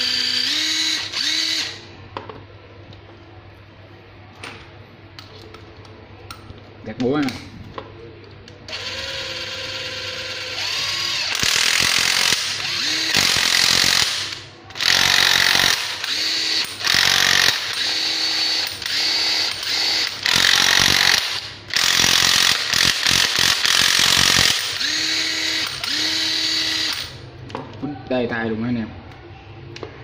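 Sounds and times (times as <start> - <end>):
impact driver motor whine: 0.0 - 1.8, 8.7 - 27.2.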